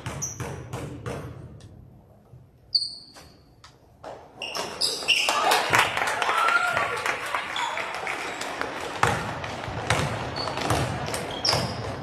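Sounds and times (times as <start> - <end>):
sneakers squeaking on court: 0.0 - 1.4, 2.7 - 5.4, 7.5 - 12.0
basketball bouncing on hardwood floor: 0.0 - 1.5, 9.0 - 12.0.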